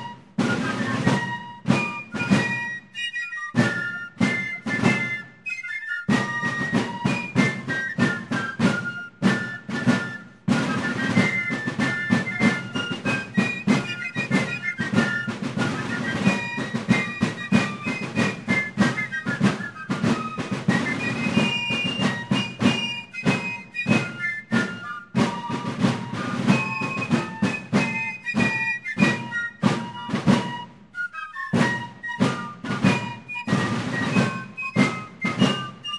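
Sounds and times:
fife melody: 0.0 - 35.9
rapid field drum strokes: 0.0 - 35.9.

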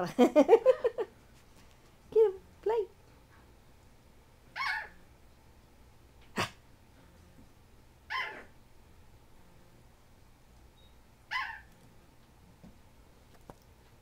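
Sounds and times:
dog barking high-pitched: 4.6 - 5.0, 8.1 - 8.5, 11.3 - 11.7.

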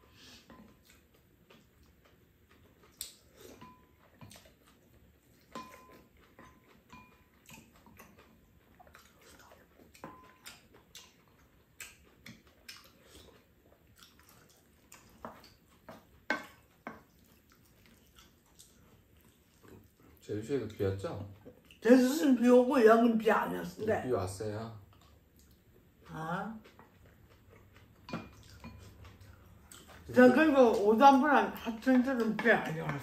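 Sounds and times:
chewing: 0.2 - 22.2, 24.8 - 33.0
chopsticks tapping ceramic bowls: 5.5 - 8.2, 15.2 - 17.1, 27.9 - 29.3, 30.1 - 33.0.

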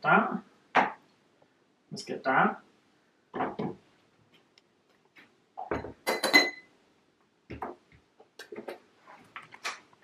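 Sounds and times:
mugs and bottle knocking: 3.3 - 3.8, 5.6 - 6.7, 7.5 - 8.8.

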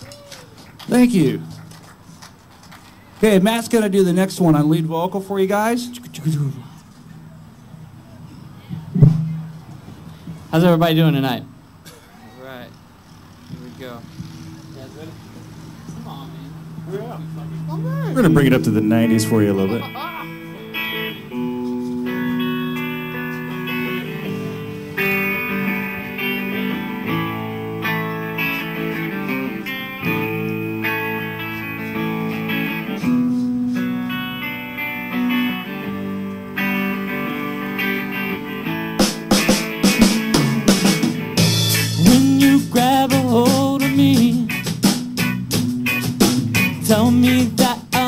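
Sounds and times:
bass guitar: 0.0 - 1.9, 3.2 - 11.8, 12.7 - 48.0
drum kit: 8.7 - 10.5, 39.0 - 48.0
electric guitar: 13.4 - 48.0
person singing: 41.9 - 44.6, 46.8 - 48.0.

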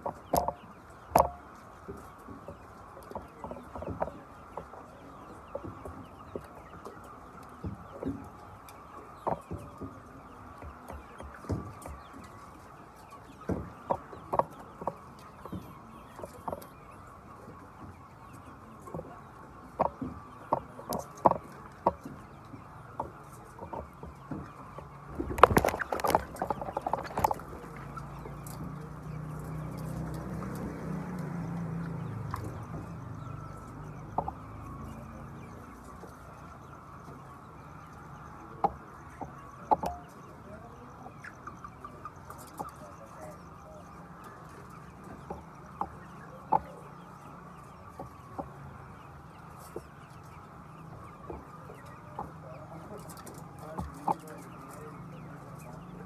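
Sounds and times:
chickens clucking: 0.0 - 56.0.

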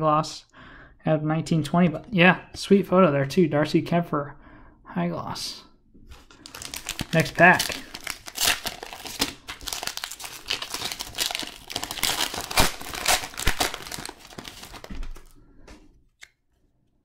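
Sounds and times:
plastic wrapper crinkling: 6.1 - 15.4.

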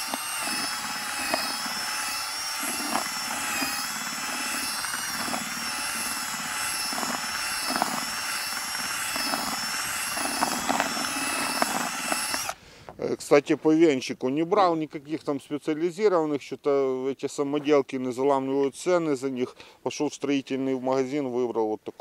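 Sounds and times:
drill motor whine: 0.0 - 12.6.

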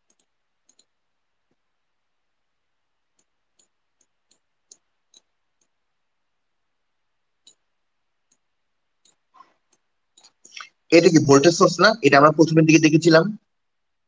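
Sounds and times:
faint computer mouse clicks: 0.0 - 1.6, 3.1 - 5.8, 7.4 - 10.8.

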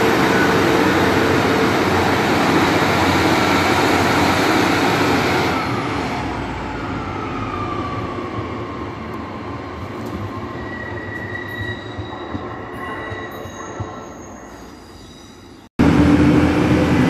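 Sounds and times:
diesel train rumble: 0.0 - 6.8, 15.8 - 17.0
train wheel squeals: 10.4 - 15.7.

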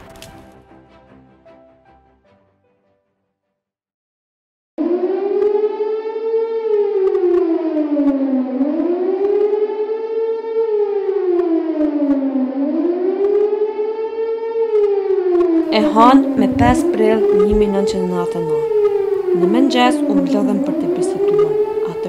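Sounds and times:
air-raid siren wailing: 4.8 - 22.0.

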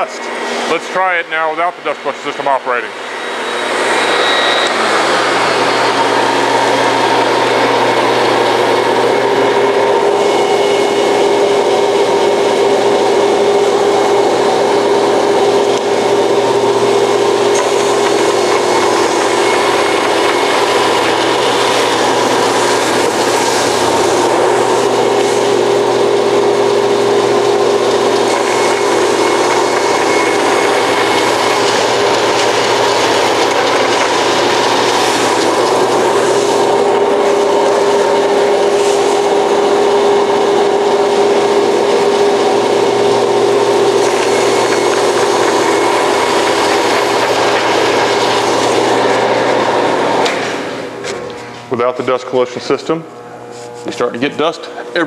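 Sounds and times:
bandsaw cutting: 2.3 - 52.8.

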